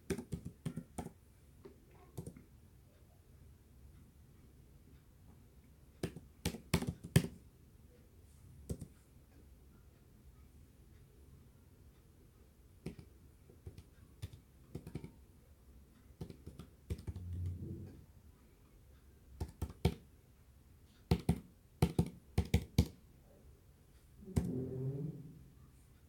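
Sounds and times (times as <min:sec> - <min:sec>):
keyboard keys clicking: 0:13.7 - 0:15.2.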